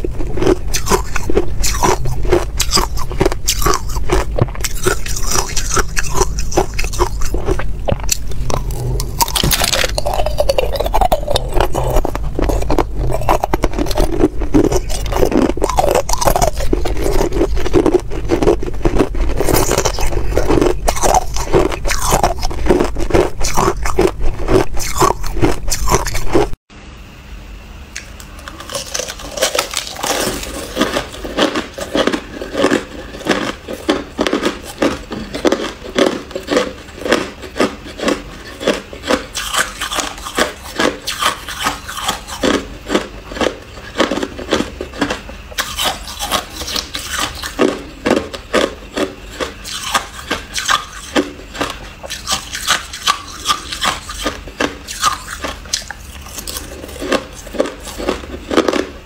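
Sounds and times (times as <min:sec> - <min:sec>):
crushed ice being chewed: 0:00.0 - 0:26.6, 0:28.0 - 0:59.0
ice cubes crunching between teeth: 0:00.0 - 0:26.6, 0:28.0 - 0:59.0.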